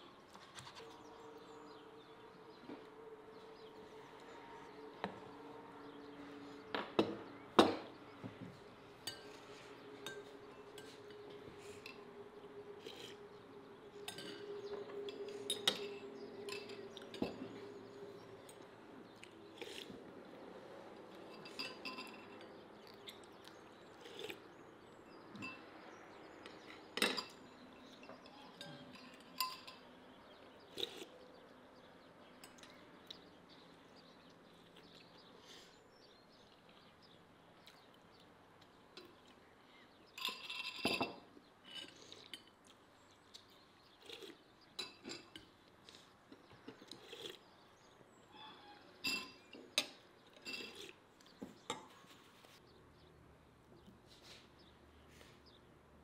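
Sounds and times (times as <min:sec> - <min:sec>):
cutlery clinking against dishes: 0:09.0 - 0:12.1, 0:14.0 - 0:17.9, 0:21.1 - 0:23.2, 0:25.3 - 0:25.7, 0:26.4 - 0:30.0, 0:40.1 - 0:42.6, 0:44.8 - 0:45.6, 0:48.3 - 0:52.1.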